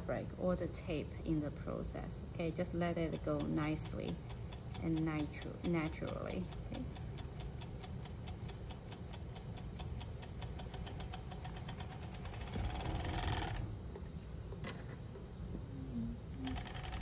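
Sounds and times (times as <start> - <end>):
sewing machine stitching: 10.3 - 13.7, 16.4 - 17.0.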